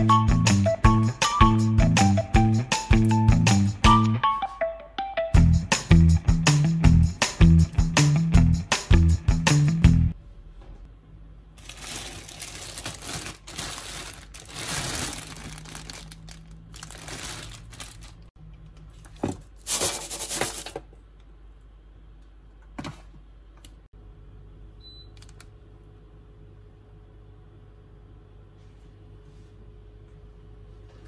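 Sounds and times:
wrapping crinkling and rustling: 11.6s - 18.3s.

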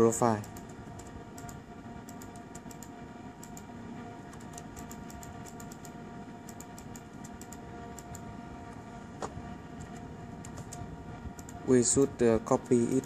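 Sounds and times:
background hum: 0.0s - 13.0s
laptop keyboard typing: 0.2s - 3.7s, 4.3s - 8.3s, 9.8s - 11.7s, 12.4s - 13.0s.

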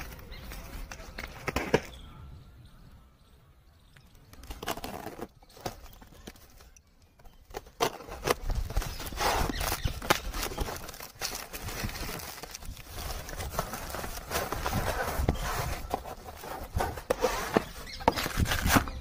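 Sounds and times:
cardboard and tape tearing: 4.4s - 6.6s, 7.5s - 19.0s.

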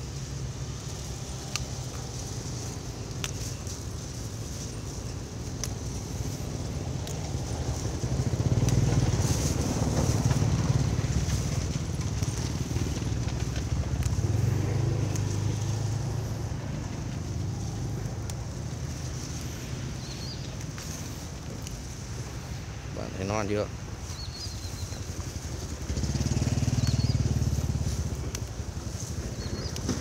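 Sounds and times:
stems snapping and rustling: 0.0s - 30.0s
vehicle engine rumbling past: 0.0s - 30.0s.

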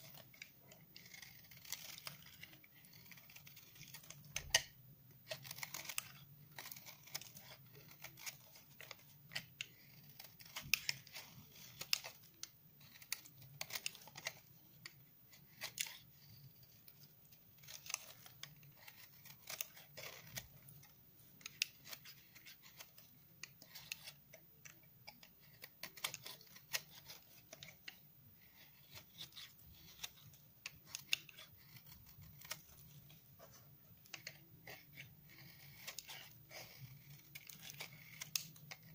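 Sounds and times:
knife scraping soap: 0.0s - 38.9s.

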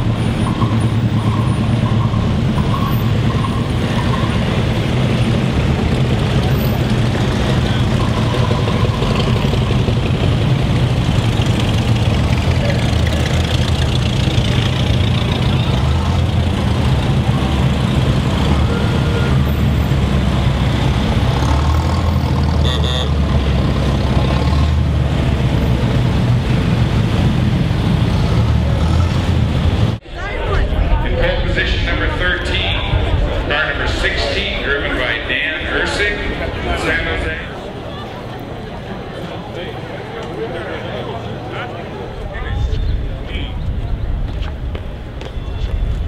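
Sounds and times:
old cars driving past: 0.0s - 45.2s
car horn toot: 18.5s - 19.6s, 22.6s - 23.2s.

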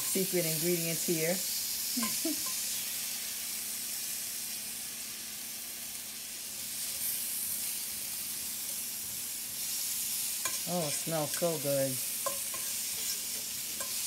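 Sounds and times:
vegetables sizzling in oil: 0.0s - 14.0s.

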